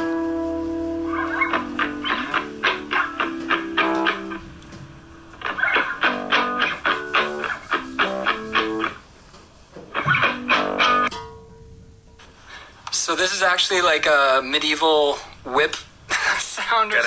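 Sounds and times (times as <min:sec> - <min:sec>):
plucked guitar chords: 0:00.0 - 0:09.0, 0:09.9 - 0:12.2.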